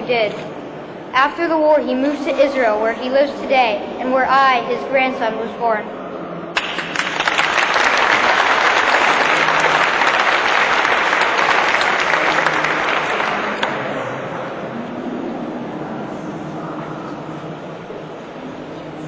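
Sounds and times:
audience applauding: 6.6 - 14.0.

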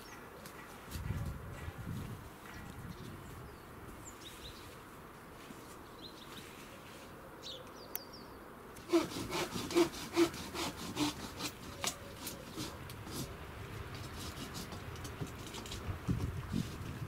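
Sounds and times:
sparrows chirping: 0.0 - 0.9, 2.4 - 4.8, 5.8 - 8.5
hand saw cutting wood: 8.8 - 17.0.

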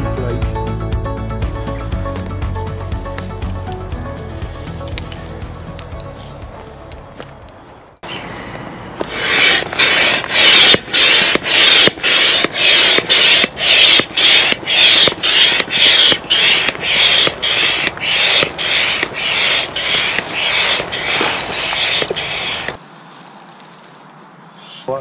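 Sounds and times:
hand air pump strokes: 9.0 - 22.8.

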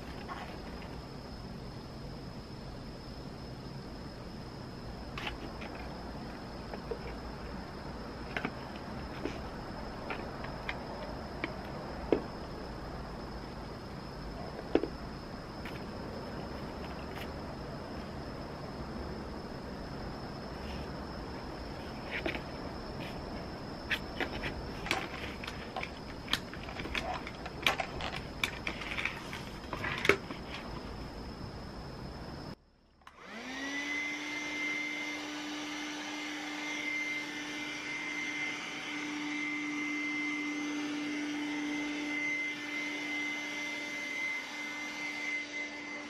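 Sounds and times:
handheld vacuum motor whining: 23.9 - 30.7, 33.0 - 46.0
plastic parts clicking and knocking: 24.2 - 30.7.

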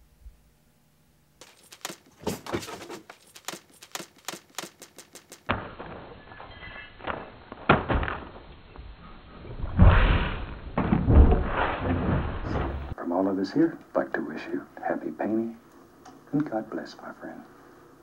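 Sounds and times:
sharp knocks and clicks: 1.4 - 5.5.

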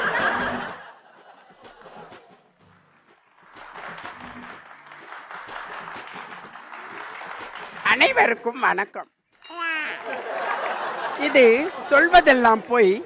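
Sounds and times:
audience applause: 0.0 - 8.2
faint background music: 0.0 - 9.6, 10.3 - 13.0.

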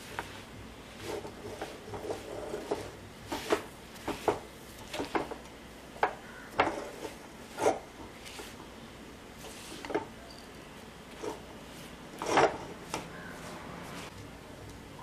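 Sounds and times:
steel spoon scraping a pan: 1.0 - 5.2, 6.3 - 8.7, 11.1 - 14.1.

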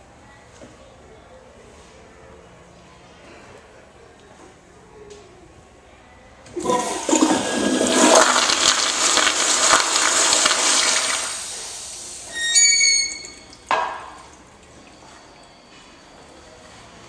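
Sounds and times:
toilet flushing: 6.5 - 15.4.

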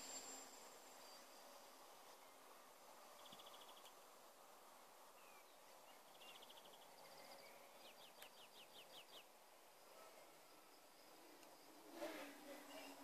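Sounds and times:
outdoor hiss: 0.0 - 13.0
bird trills and chirps: 3.1 - 4.0, 5.2 - 9.3.

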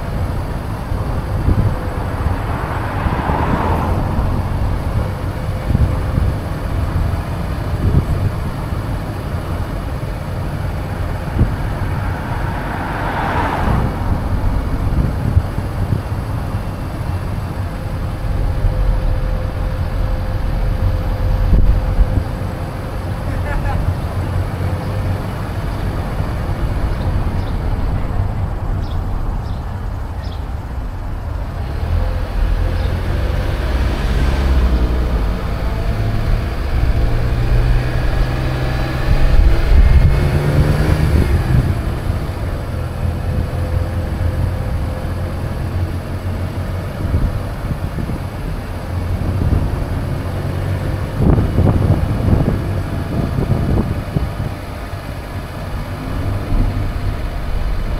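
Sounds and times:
car engine and road rumble: 0.0 - 57.9.

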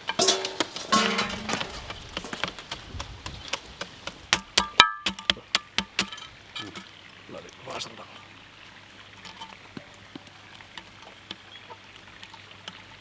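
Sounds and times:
ice clattering against metal drum: 0.0 - 2.8.

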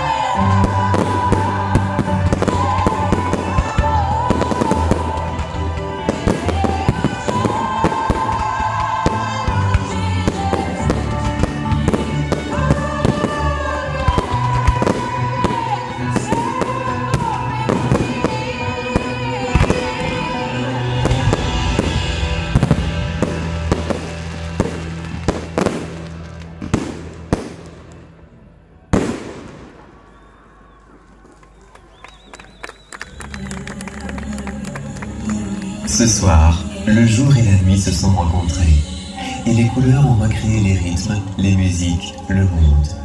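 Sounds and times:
music with sung melody: 0.0 - 27.6, 33.0 - 43.0
fireworks bursting: 0.0 - 28.3, 28.9 - 33.4.

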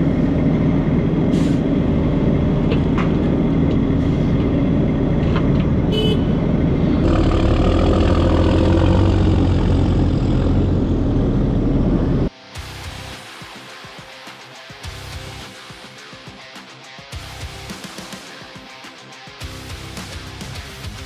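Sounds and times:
heavy diesel engine running: 0.0 - 12.3.

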